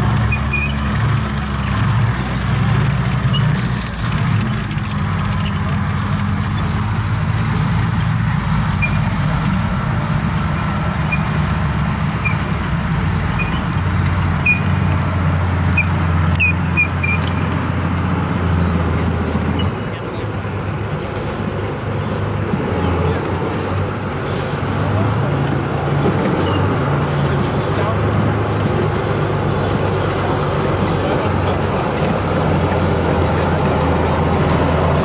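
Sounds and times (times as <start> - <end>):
tank engine droning: 0.0 - 35.0
short high squeaks: 0.2 - 0.8, 13.3 - 13.7, 15.8 - 17.4.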